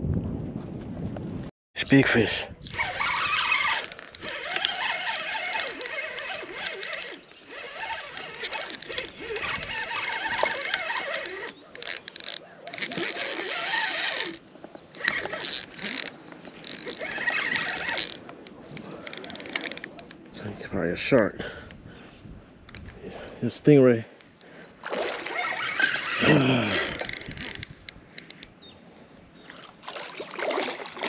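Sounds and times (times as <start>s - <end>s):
fishing reel gears cranking: 2.6s - 14.4s, 15.0s - 20.2s, 25.1s - 28.5s
reel drag ratcheting: 2.6s - 20.2s, 22.7s - 23.0s, 24.4s - 28.5s.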